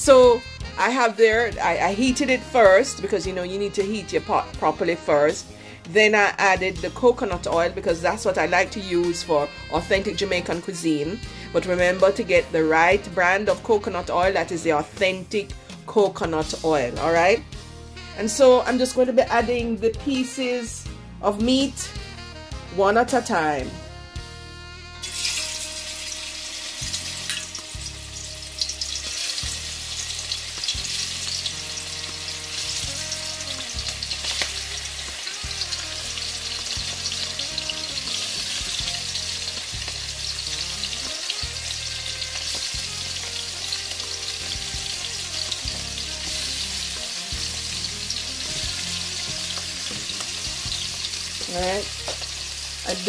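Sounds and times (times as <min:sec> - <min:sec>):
meat sizzling in hot oil: 0:25.0 - 0:53.0.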